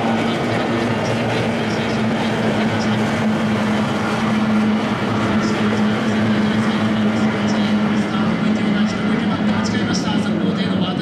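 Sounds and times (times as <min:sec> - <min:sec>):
outboard motors running: 0:00.0 - 0:11.0.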